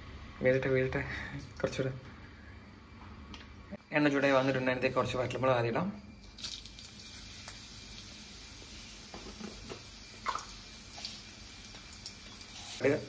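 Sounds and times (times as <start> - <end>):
oil sizzling in a wok: 6.1 - 13.0.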